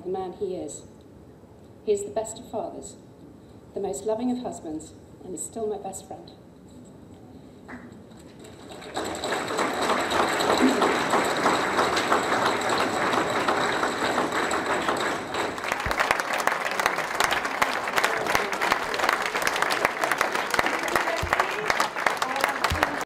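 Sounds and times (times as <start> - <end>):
audience applause: 8.4 - 23.0.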